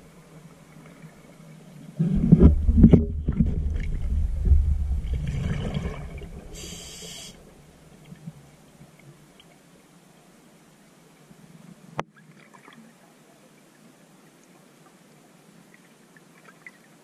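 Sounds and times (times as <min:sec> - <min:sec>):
rush of bubbles underwater: 0:02.0 - 0:07.7
hissing regulator inhalation: 0:06.5 - 0:07.4.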